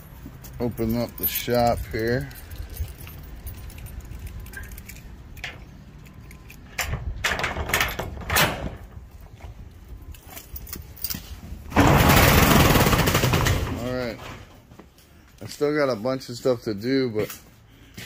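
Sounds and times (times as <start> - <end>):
metal roll-up door rattling: 6.7 - 9.1, 11.7 - 14.5.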